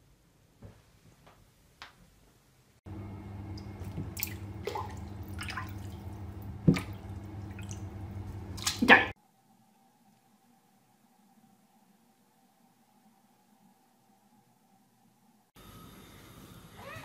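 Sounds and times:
steady low hum: 0:02.9 - 0:16.8
water dripping in bathtub: 0:03.4 - 0:09.2.

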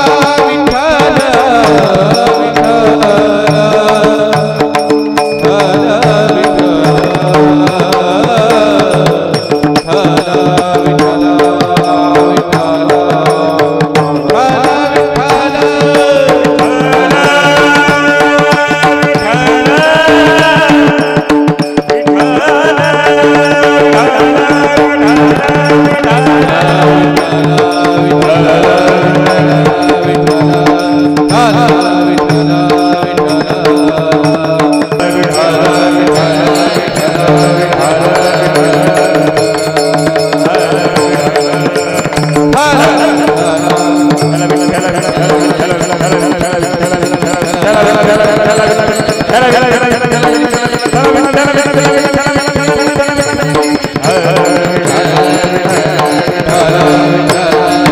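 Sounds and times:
tabla playing: 0:00.0 - 0:57.9.

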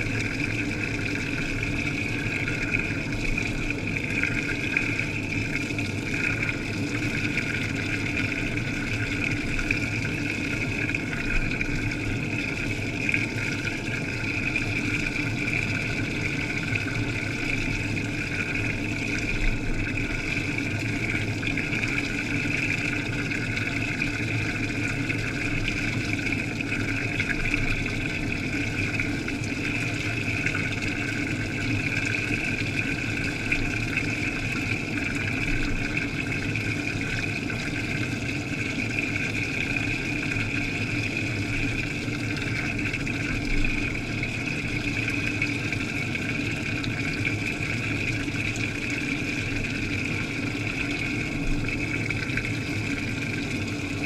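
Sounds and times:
washing machine churning underwater: 0:00.0 - 0:54.0.

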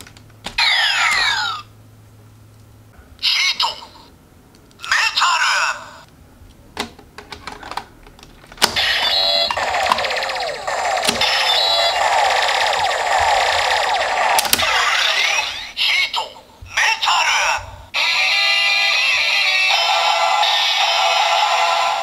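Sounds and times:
warbling electronic sound effect: 0:08.8 - 0:15.8.

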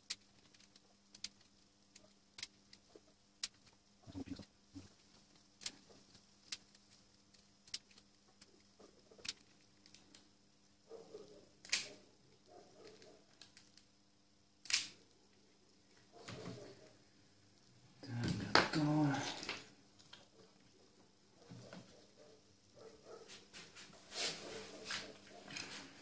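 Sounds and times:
pliers clicking and snapping: 0:14.6 - 0:15.0
rustling: 0:18.1 - 0:26.0.

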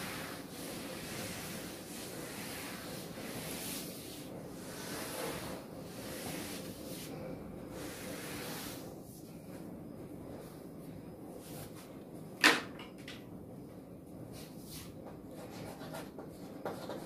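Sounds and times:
eraser wiping chalkboard: 0:00.0 - 0:09.0.

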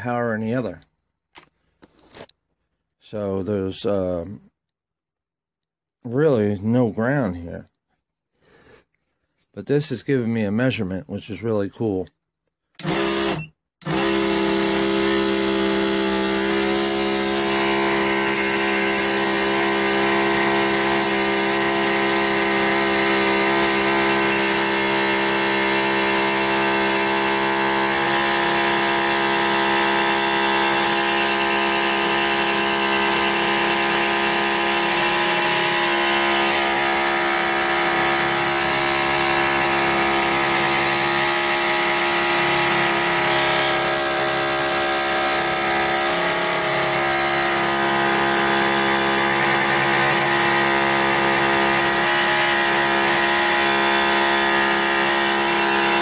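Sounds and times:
motor machine humming and whining: 0:12.8 - 0:56.0.

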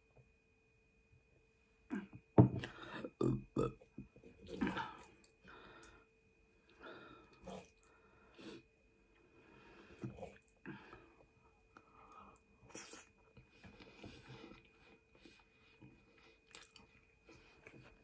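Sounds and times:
person burping: 0:01.9 - 0:05.1
chewing: 0:16.0 - 0:18.0.

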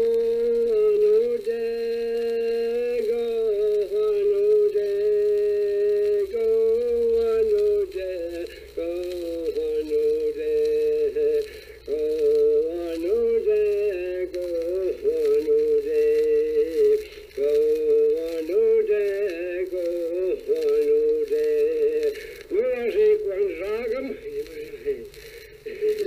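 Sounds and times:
man singing unaccompanied: 0:00.0 - 0:26.0
steady low hum: 0:00.0 - 0:26.0.

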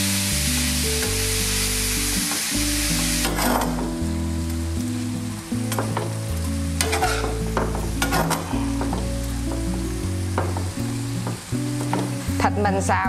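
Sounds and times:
background music low notes: 0:00.0 - 0:13.0
meat sizzling in a frying pan: 0:00.0 - 0:13.0
metal spatula scraping a pan: 0:03.2 - 0:03.9, 0:06.8 - 0:09.1.

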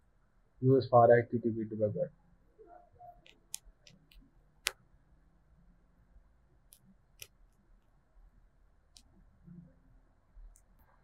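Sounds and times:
computer mouse clicking: 0:03.2 - 0:04.8.

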